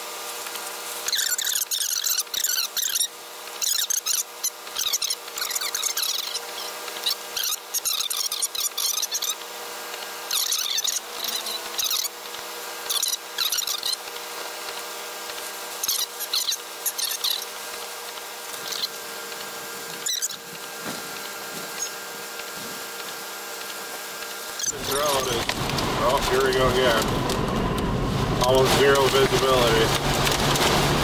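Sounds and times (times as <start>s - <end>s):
steady hum: 0.0s - 31.0s
windshield wipers squeaking on glass: 1.1s - 4.2s, 4.8s - 9.4s, 10.3s - 12.2s, 12.8s - 14.1s, 15.8s - 17.6s, 18.6s - 19.0s, 20.0s - 21.0s.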